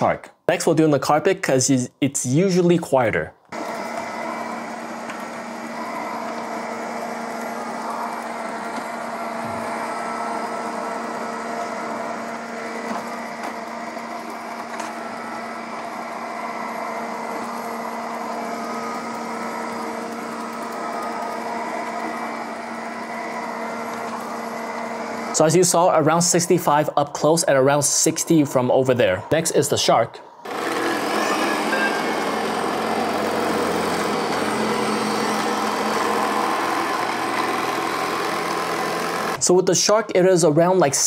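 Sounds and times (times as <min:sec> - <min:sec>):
robot vacuum motor humming: 0:03.5 - 0:26.8, 0:30.4 - 0:39.4.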